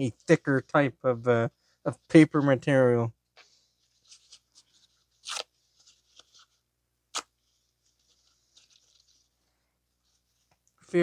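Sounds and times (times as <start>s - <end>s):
paper rustling and crinkling: 7.5s - 9.4s.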